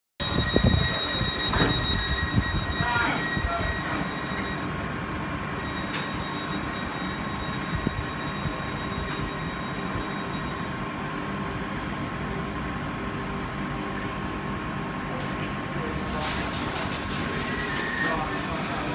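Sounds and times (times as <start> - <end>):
high steady whining tones: 0.2 - 15.2.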